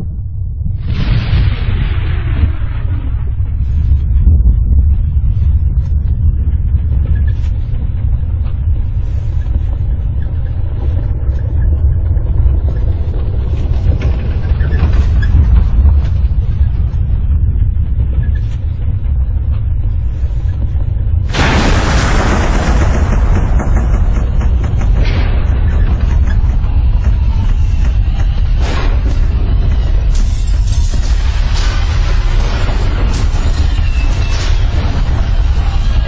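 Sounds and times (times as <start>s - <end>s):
deep steady rumble: 0.0s - 36.0s
loud explosion blast: 0.7s - 5.2s, 21.3s - 36.0s.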